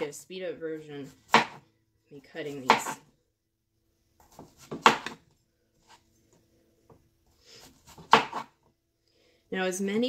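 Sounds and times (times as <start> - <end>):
knife slicing squash: 1.1 - 1.6, 2.5 - 3.0, 4.2 - 5.2, 7.6 - 8.6.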